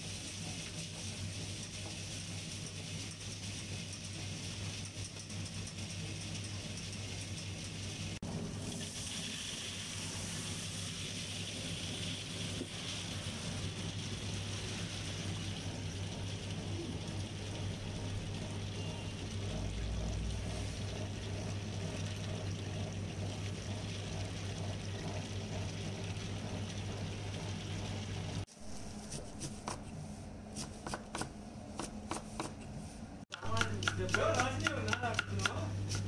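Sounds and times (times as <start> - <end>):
wet grinder running: 33.4 - 36.0.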